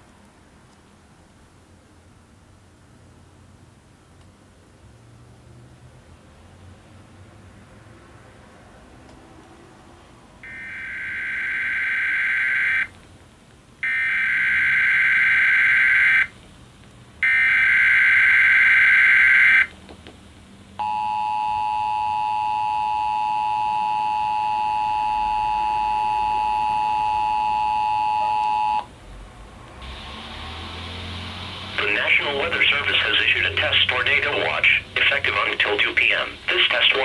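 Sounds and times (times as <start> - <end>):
two-tone attention signal: 10.4 - 12.9, 20.8 - 28.9.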